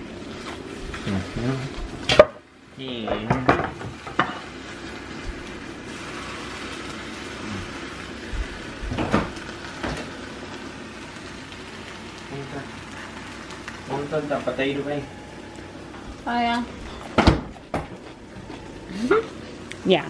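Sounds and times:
steady hiss: 0:00.0 - 0:20.0
kitchen knocks and clatters: 0:02.0 - 0:02.4, 0:03.1 - 0:04.4, 0:08.8 - 0:10.1, 0:16.9 - 0:18.0.

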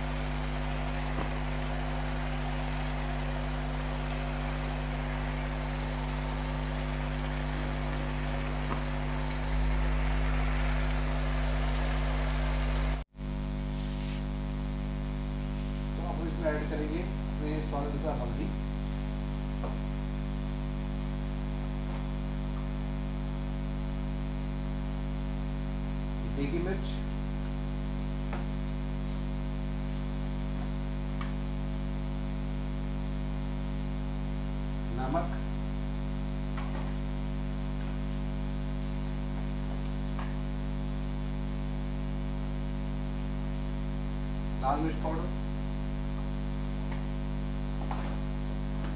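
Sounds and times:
electrical mains hum: 0:00.0 - 0:48.9.

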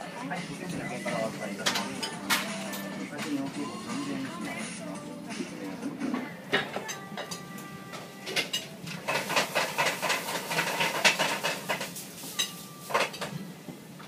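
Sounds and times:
dishes and cutlery clattering: 0:00.6 - 0:03.5, 0:06.0 - 0:13.4.

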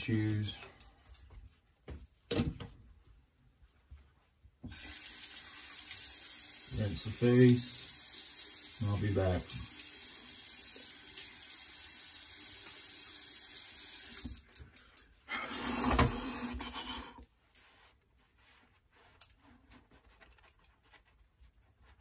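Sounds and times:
tap water running into sink: 0:04.7 - 0:14.4
towel rustling on face: 0:15.7 - 0:22.0.

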